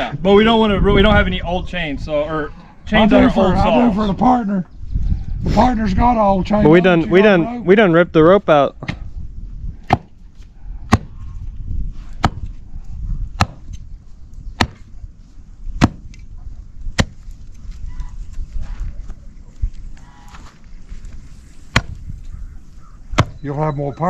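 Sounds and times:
axe chopping into roots: 9.9 - 10.1, 10.9 - 11.1, 13.4 - 13.7, 14.6 - 14.9, 15.8 - 16.1, 16.9 - 17.2, 21.7 - 22.0.

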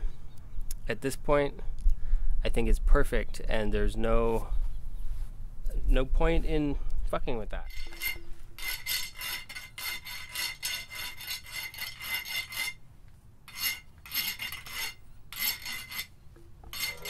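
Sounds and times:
hand file rasping on metal: 7.7 - 12.8, 13.5 - 17.0.

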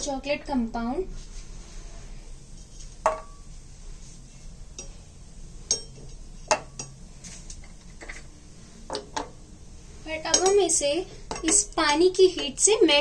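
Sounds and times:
chocolate clinking in metal bowl: 10.3 - 10.6.

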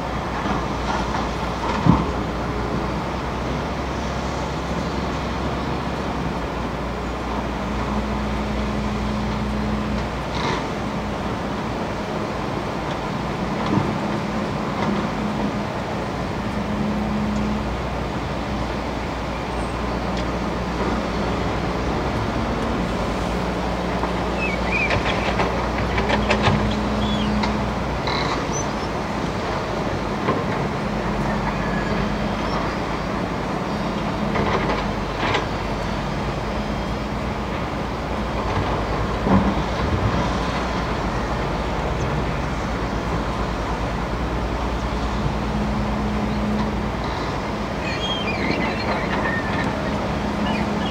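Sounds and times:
excavator diesel engine under load: 0.0 - 50.9
river water rushing: 0.0 - 50.9.

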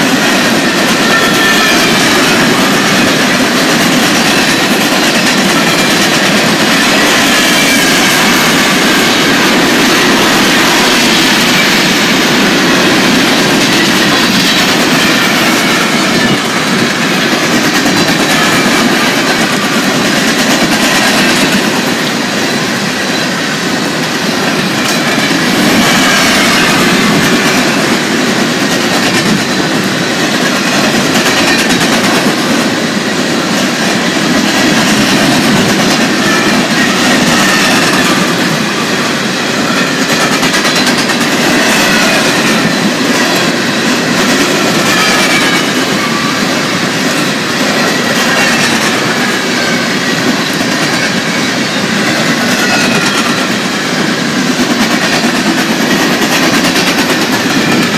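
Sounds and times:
high wheel squeals: 0.0 - 28.1, 41.4 - 54.3
steel wheels rolling on rail: 0.0 - 57.9.

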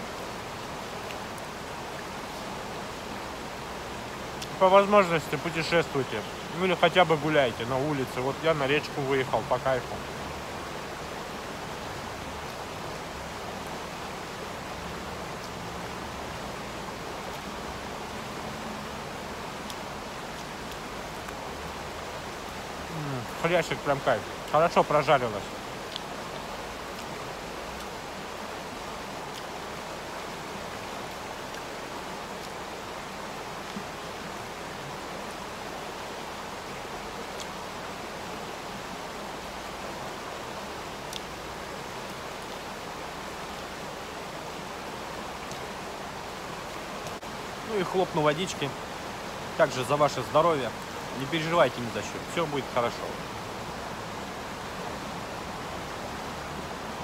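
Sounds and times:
river rushing: 0.0 - 57.0.

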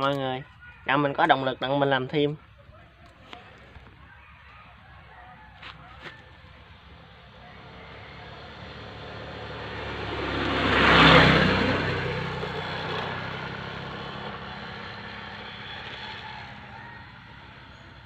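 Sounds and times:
motorbike passing by: 5.8 - 18.0.

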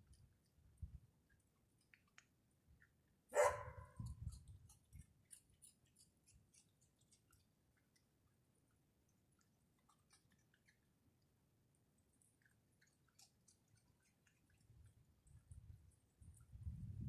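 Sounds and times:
animal chewing crunchily: 0.0 - 16.6.

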